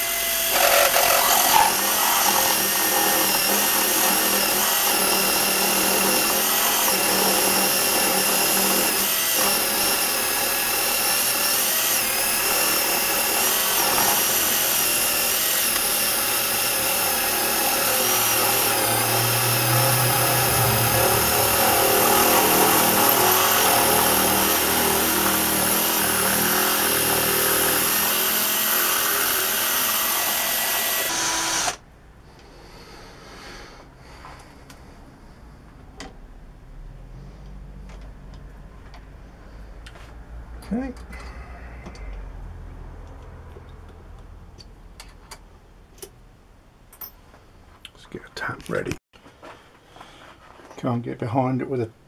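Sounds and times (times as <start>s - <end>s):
cordless drill running: 0.0s - 31.8s.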